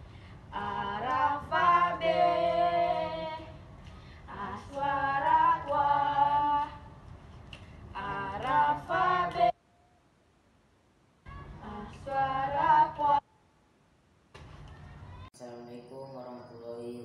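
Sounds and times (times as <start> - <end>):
young voices singing a cappella: 0.5 - 7.0, 7.9 - 9.6, 11.3 - 13.2.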